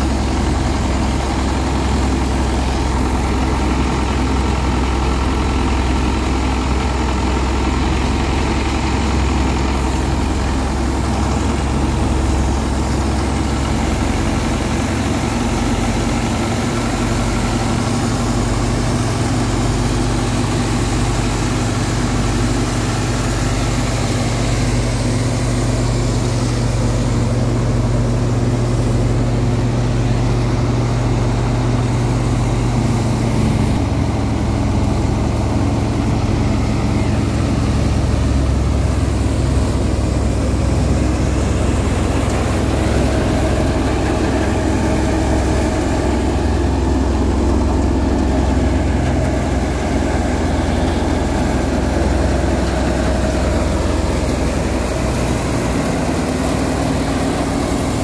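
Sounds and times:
thresher drum churning: 0.0 - 58.0
tractor diesel engine running: 0.0 - 58.0.

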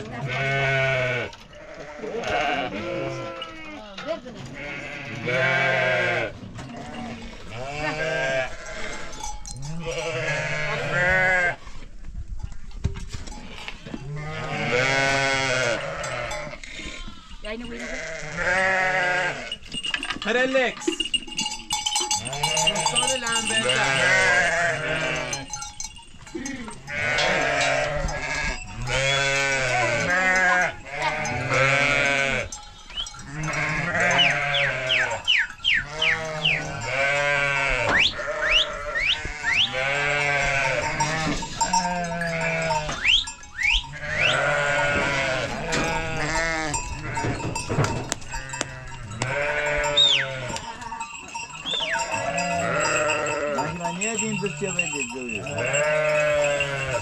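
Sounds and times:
sheep and goats bleating: 0.0 - 11.8, 13.3 - 57.0.

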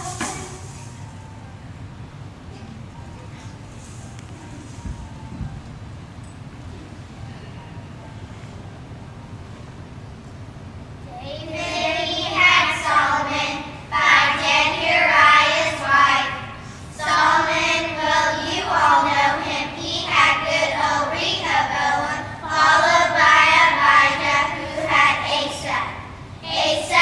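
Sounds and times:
children singing in unison: 11.4 - 25.8, 26.4 - 27.0.

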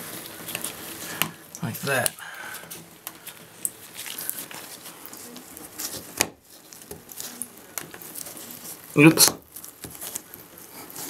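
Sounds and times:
rubber glove rustling: 0.0 - 11.0.

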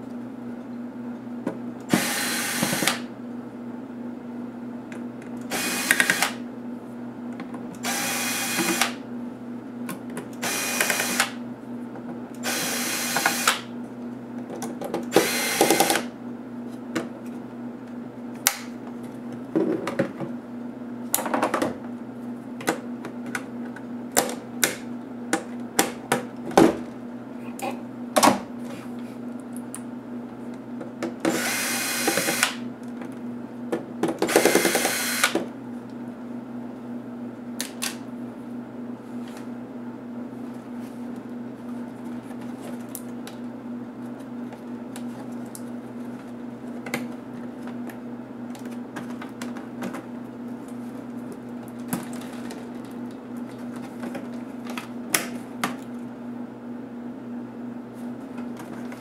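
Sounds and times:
electric screwdriver running: 1.9 - 3.0, 5.5 - 6.4, 7.8 - 9.0, 10.4 - 11.4, 12.4 - 13.6, 15.1 - 16.1, 31.3 - 32.6, 34.3 - 35.4.

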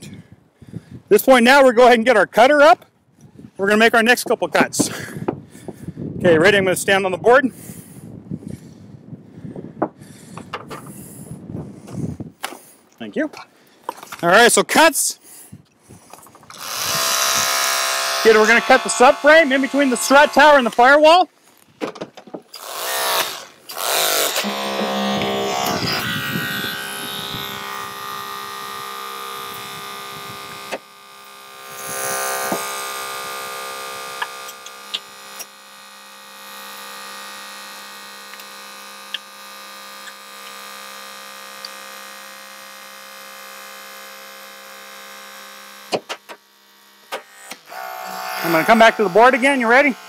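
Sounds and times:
hydraulic cutter humming: 15.9 - 21.6, 22.3 - 50.0
noisy surge: 16.5 - 21.2, 22.6 - 35.4, 47.7 - 50.0.

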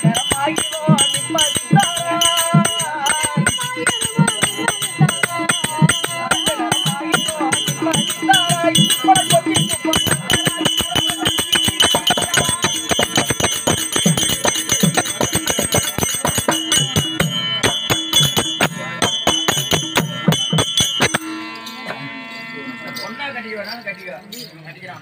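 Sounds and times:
hand drums playing fast: 0.0 - 21.5
small hand cymbals ringing: 0.0 - 25.0
held drone: 0.2 - 24.5.

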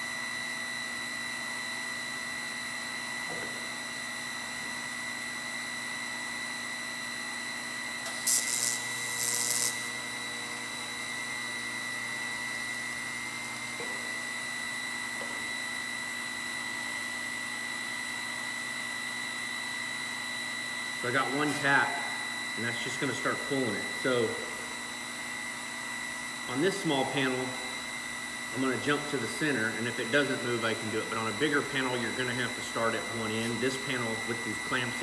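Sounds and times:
welding arc hiss: 8.0 - 10.0
steady high whine: 8.0 - 14.5.

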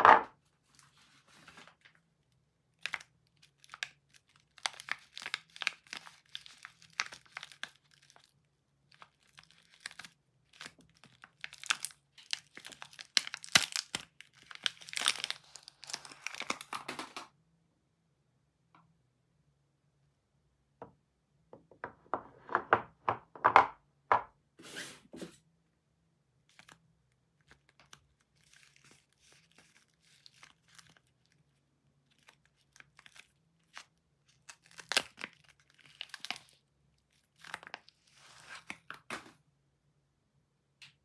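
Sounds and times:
wrapper crinkling and tearing: 2.7 - 17.2, 26.5 - 26.8, 27.4 - 39.3.

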